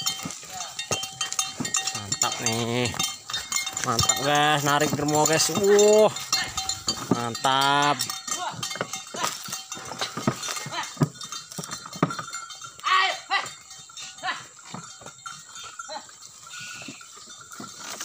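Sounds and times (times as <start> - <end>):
wooden cart knocking: 0.0 - 12.8
cow bell clanking: 0.0 - 18.0.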